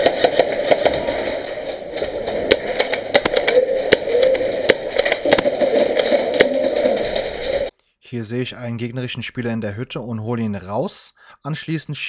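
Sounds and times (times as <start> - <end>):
airsoft guns firing: 0.0 - 7.7.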